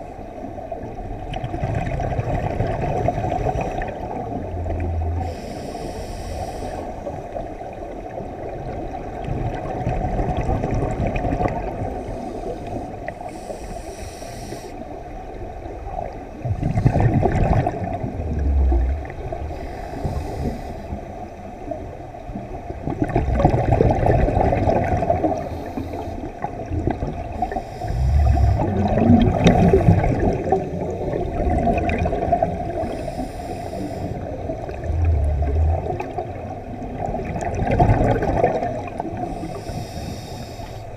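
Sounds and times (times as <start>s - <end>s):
exhaust bubbles gurgling: 1.1s - 5.6s, 8.4s - 12.1s, 16.0s - 20.5s, 22.7s - 39.7s
regulator hiss underwater: 3.3s - 7.3s, 12.0s - 15.0s, 16.6s - 21.2s, 23.9s - 36.5s, 37.4s - 40.9s.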